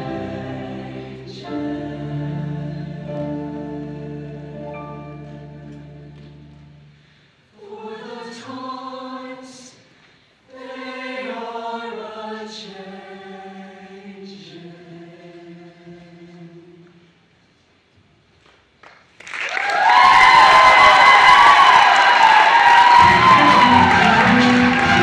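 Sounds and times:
choir singing in harmony: 0.0 - 9.8, 10.5 - 16.9, 21.6 - 25.0.

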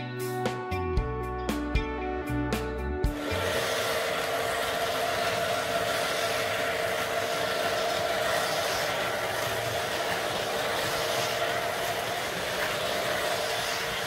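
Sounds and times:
model train whirring and rumbling: 3.2 - 14.0.

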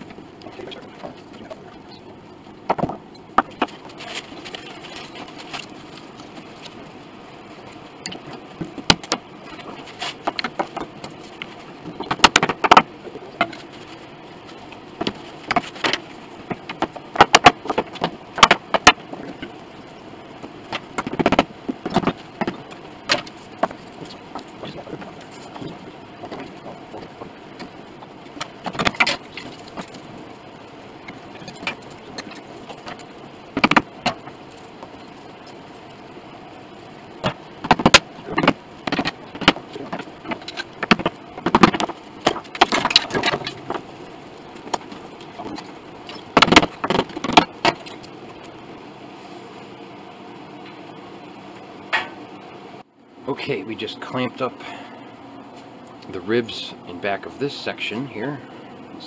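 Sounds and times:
wooden wedges knocking: 2.6 - 5.6, 8.1 - 13.7, 15.0 - 19.5, 20.7 - 30.0, 33.6 - 34.3, 37.2 - 43.8, 44.6 - 48.0.

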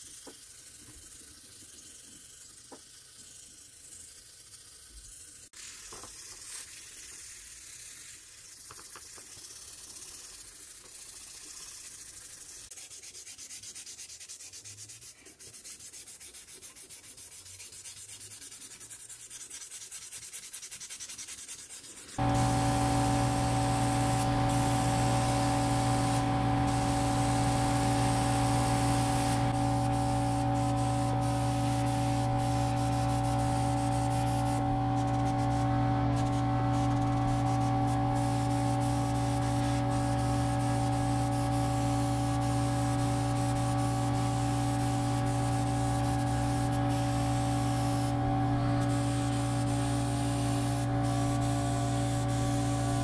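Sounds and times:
machine hum: 22.2 - 53.0
spraying hiss: 22.2 - 53.0.

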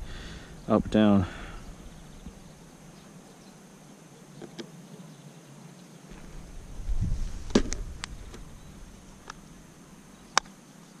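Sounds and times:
handling noise rumble: 6.1 - 10.4.

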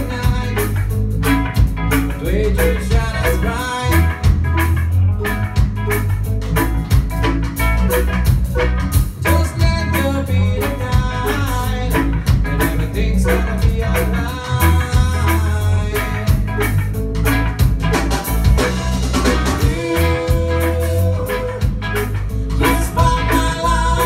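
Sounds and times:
person singing: 0.0 - 0.8, 2.2 - 4.2, 9.2 - 16.6, 18.6 - 24.0
reggae band playing live: 0.0 - 24.0.

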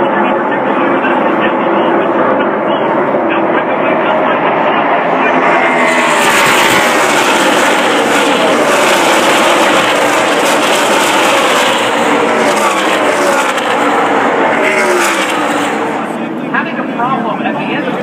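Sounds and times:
race truck engines passing: 0.0 - 18.0.

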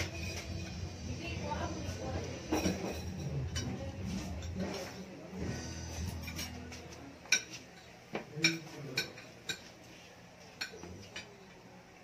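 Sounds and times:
cutlery clinking against plates: 0.0 - 0.9, 2.2 - 5.1, 5.7 - 11.5.

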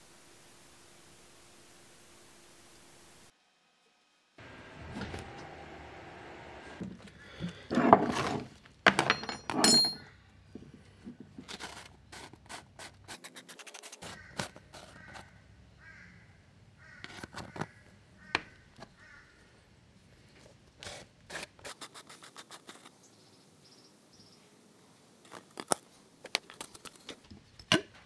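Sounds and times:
steady hum: 4.4 - 6.9
high metallic ring: 9.1 - 10.1.

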